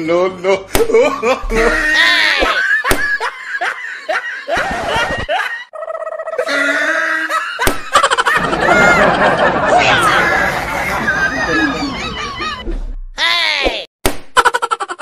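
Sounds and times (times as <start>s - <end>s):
people laughing and chuckling: 0.9s - 12.8s.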